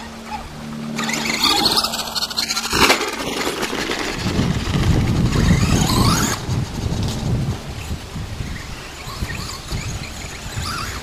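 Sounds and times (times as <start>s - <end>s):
electric motor whining: 0.0s - 6.6s.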